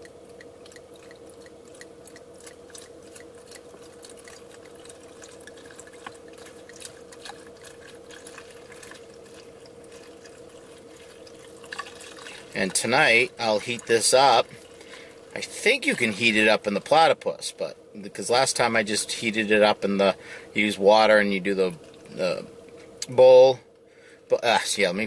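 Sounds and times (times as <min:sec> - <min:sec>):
faint regular ticking: 0:00.0 - 0:17.0
liquid pouring from a bottle: 0:00.0 - 0:17.0
steady hum: 0:00.0 - 0:25.0.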